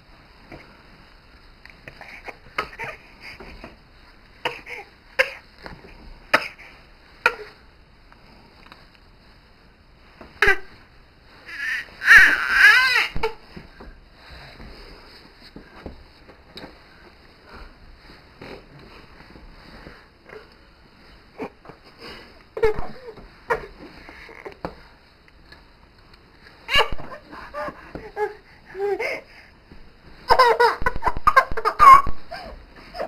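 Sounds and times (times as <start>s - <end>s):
baby squealing and giggling: 11.5s - 13.4s, 26.7s - 29.2s.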